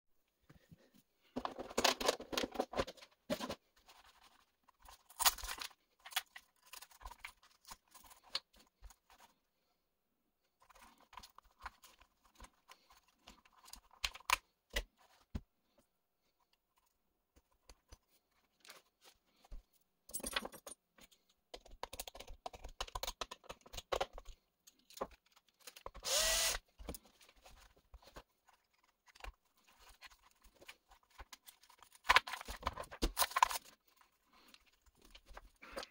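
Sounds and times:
plastic clicks and rattles: 20.1s - 26.0s
hex driver turning screws: 25.8s - 26.6s.

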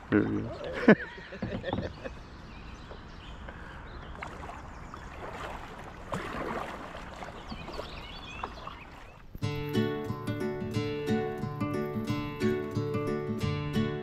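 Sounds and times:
paddle dips: 0.0s - 13.4s
water lapping against kayak hull: 1.3s - 9.4s.

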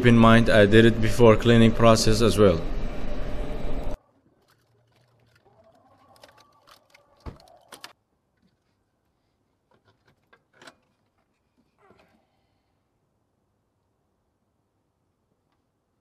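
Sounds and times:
engine parts clicking and knocking: 4.0s - 8.7s, 9.6s - 12.1s.

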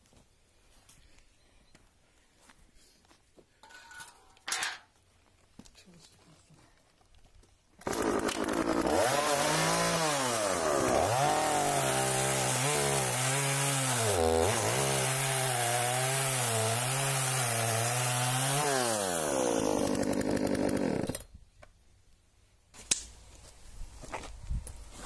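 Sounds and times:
chainsaw cutting log: 7.8s - 21.3s.

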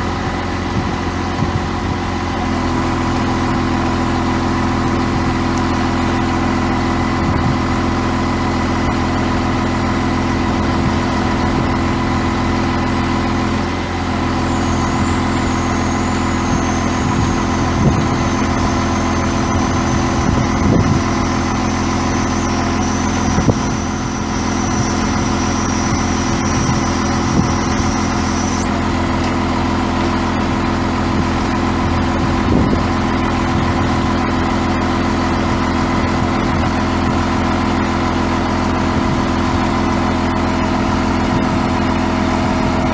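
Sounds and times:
diesel engine idling: 0.0s - 42.9s
thin high whine: 14.4s - 29.4s.

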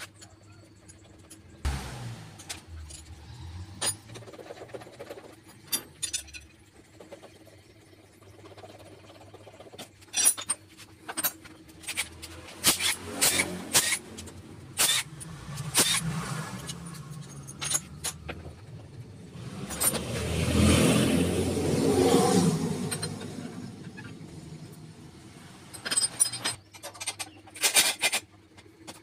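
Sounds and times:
wrench clicking on bolts: 11.8s - 18.4s.

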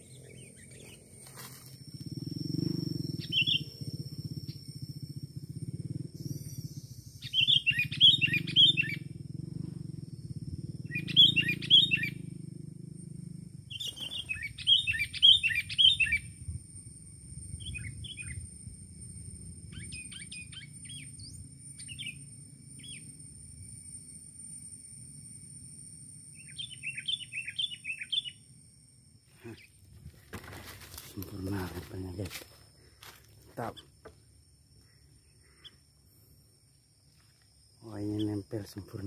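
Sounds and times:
bird calling: 0.0s - 4.8s, 6.1s - 9.2s, 10.6s - 12.3s, 13.7s - 16.3s, 26.4s - 28.4s
low steady hum: 0.0s - 38.6s.

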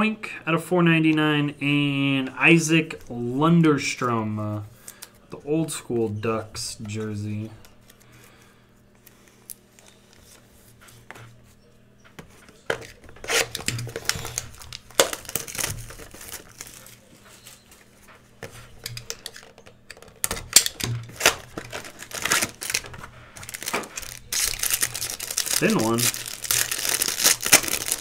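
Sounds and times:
cellophane wrapper crinkling and tearing: 12.9s - 17.1s, 20.2s - 28.0s.

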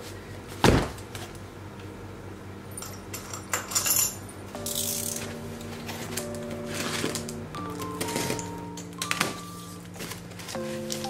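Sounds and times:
soft background music: 4.6s - 11.0s.

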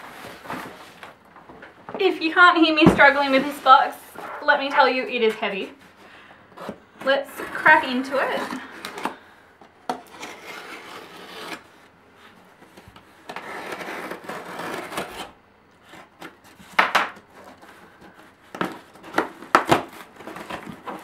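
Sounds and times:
blade scraping cardboard box: 6.6s - 9.2s, 9.9s - 11.9s, 13.2s - 16.6s.

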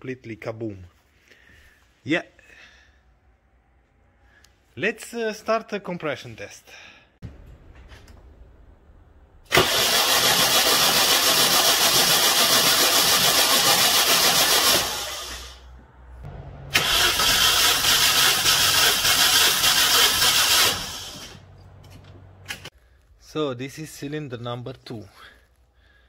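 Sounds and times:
engine cranking on starter: 9.5s - 15.6s, 16.7s - 21.4s.

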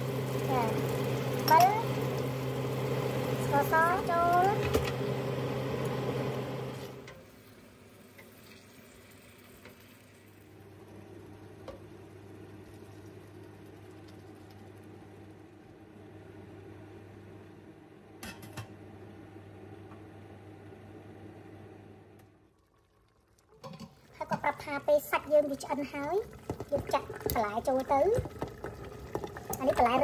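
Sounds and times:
chicken sizzling in a pot: 0.0s - 15.3s, 22.4s - 30.0s
liquid pouring into a pot: 7.2s - 10.7s, 22.2s - 30.0s.

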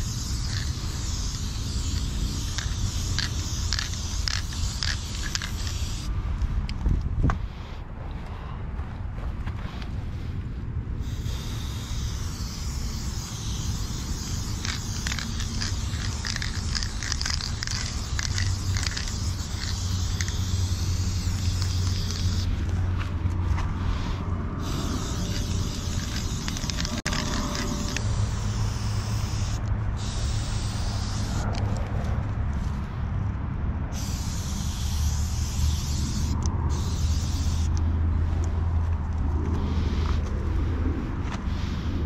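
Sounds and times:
spray can hissing: 0.0s - 6.1s, 11.0s - 22.6s, 23.9s - 31.7s, 33.9s - 37.9s.

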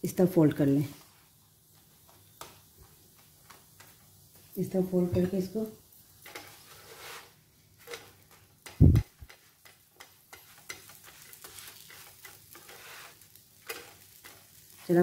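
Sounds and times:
faint frying sizzle: 0.0s - 15.0s
spatula scraping nonstick pan: 5.2s - 15.0s.

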